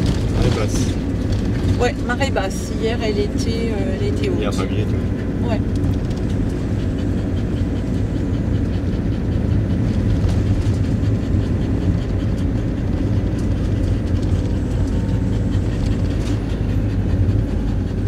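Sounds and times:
motorhome engine and road rumble: 0.0s - 18.0s.

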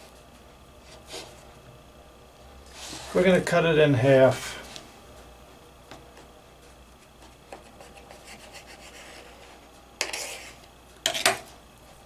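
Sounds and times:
knife sawing through dough: 7.6s - 10.6s.

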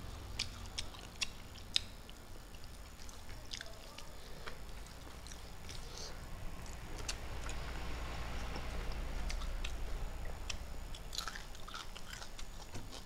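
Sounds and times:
person chewing food loudly: 0.0s - 7.6s, 8.5s - 13.0s
low hum: 0.0s - 13.0s.

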